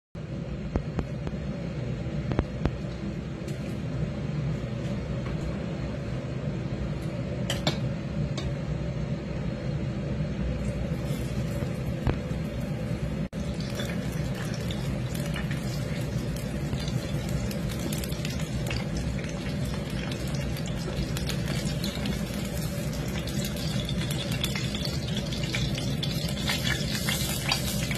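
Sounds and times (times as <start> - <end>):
fish frying in hot oil: 10.7 - 27.9.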